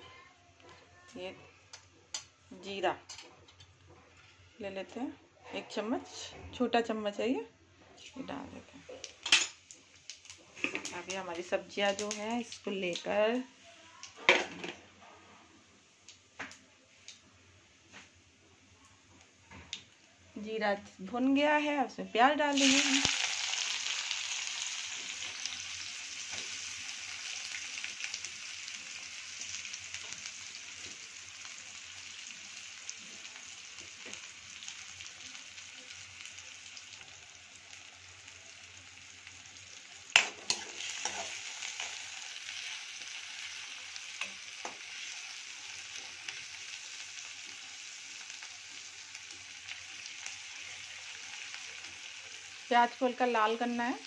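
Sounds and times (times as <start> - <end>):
onions sizzling in hot oil: 9.0 - 14.7, 19.2 - 54.0.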